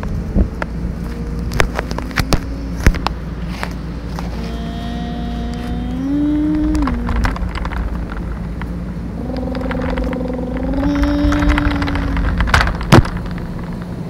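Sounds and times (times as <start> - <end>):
toy electric motor whining: 4.1 - 8.2, 9.2 - 12.8
sharp clicks and knocks: 6.4 - 14.0.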